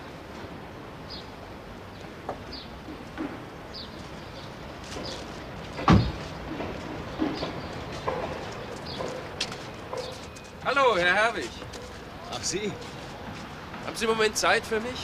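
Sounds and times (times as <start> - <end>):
bird chirping: 3.6 - 5.4, 7.0 - 13.0
heavy thump: 5.8 - 7.5.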